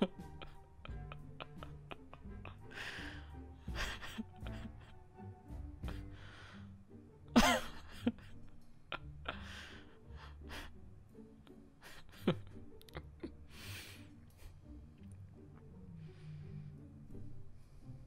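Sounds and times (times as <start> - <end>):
person laughing breathily: 0.0 - 5.1, 7.4 - 10.8, 11.8 - 14.6.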